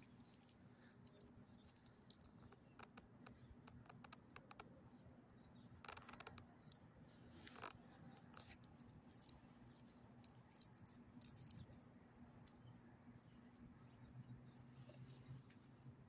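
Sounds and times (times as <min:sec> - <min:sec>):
dog collar tags jingling: 0:09.2 - 0:11.9.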